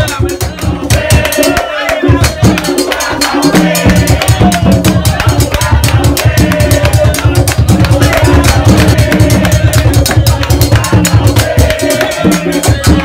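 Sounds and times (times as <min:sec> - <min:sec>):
bass beat: 0:00.0 - 0:13.0
fast drum and percussion beat: 0:00.0 - 0:13.0.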